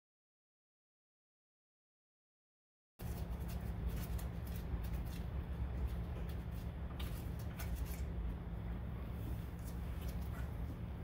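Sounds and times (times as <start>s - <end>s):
steady low rumble: 3.0s - 11.0s.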